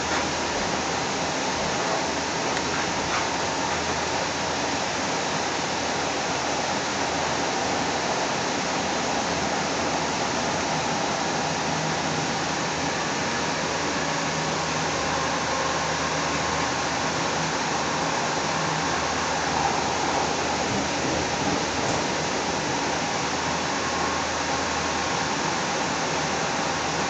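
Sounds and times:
train wheels on rail: 0.0s - 4.9s, 9.8s - 26.2s
faint steady whine: 0.0s - 27.0s.

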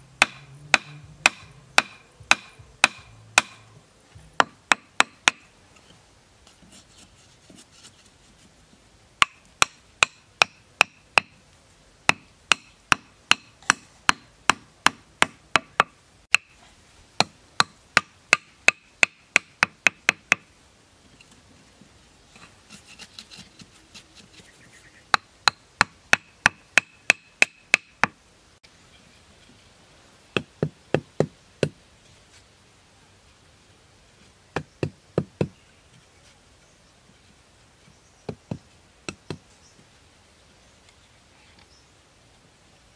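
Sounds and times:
wooden club knocking bamboo stakes: 0.2s - 3.7s, 4.3s - 5.5s, 9.2s - 11.4s, 12.1s - 16.6s.

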